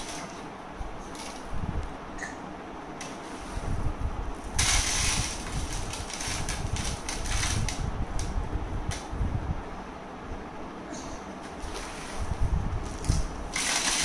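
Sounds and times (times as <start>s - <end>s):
flakes pouring into plastic bowl: 4.6s - 7.6s, 13.6s - 14.0s.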